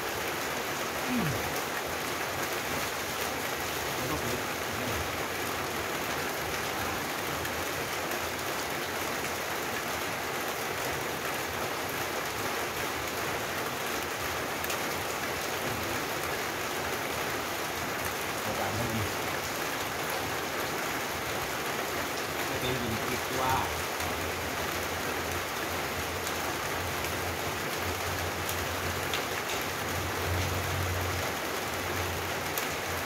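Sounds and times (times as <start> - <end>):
steady rain falling: 0.0 - 33.0.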